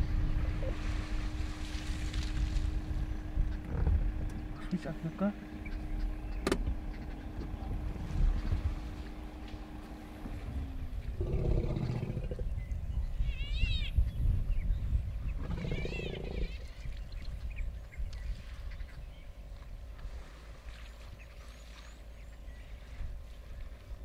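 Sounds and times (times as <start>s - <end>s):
low drawn-out animal calls: 0.0s - 1.6s, 2.7s - 14.1s, 15.3s - 17.2s
low steady rumble: 0.0s - 24.0s.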